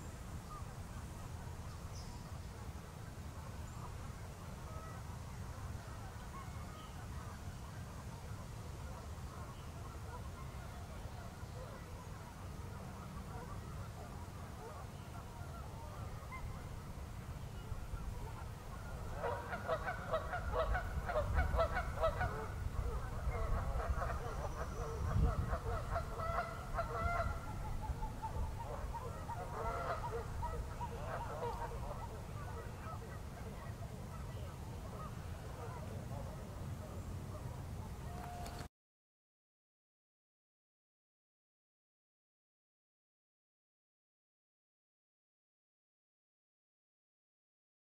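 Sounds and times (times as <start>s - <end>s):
flock of birds calling: 9.4s - 36.5s.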